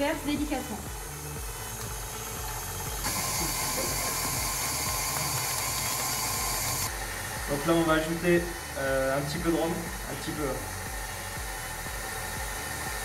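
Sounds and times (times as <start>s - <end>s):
higher hiss: 0.0s - 13.0s
stand mixer running: 0.0s - 13.0s.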